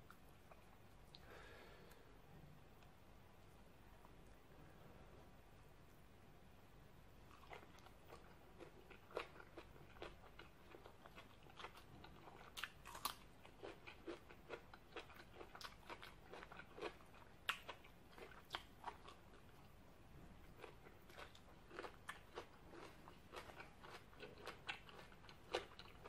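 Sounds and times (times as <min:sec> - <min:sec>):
person chewing crunchy food: 0:07.3 - 0:19.8, 0:20.4 - 0:26.0.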